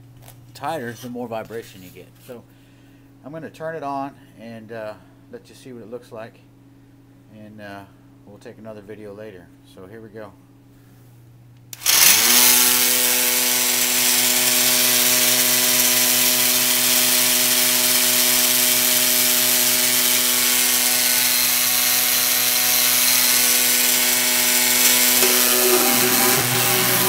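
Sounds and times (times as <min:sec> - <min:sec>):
electric sander humming: 0:11.8 - 0:27.0.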